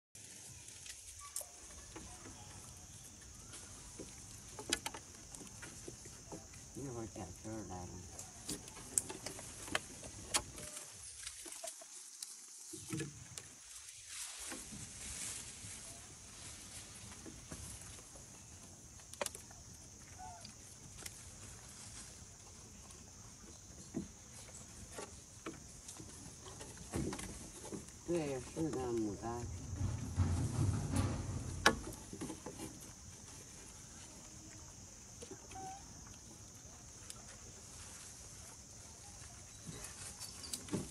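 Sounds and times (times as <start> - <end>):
monkeys scuffling on wooden boards: 0.2 - 7.2, 8.0 - 34.1, 37.2 - 40.9
faint high hiss: 9.4 - 25.1.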